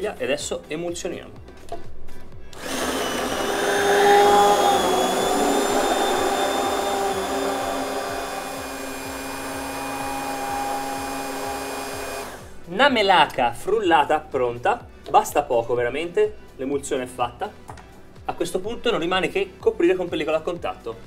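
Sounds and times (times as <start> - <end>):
stick blender motor whirring: 2.5 - 12.6.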